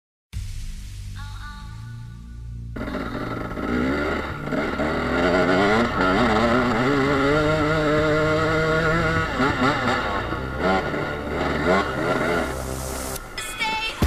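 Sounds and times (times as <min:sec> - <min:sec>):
motorcycle engine revving: 0:02.7 - 0:13.4.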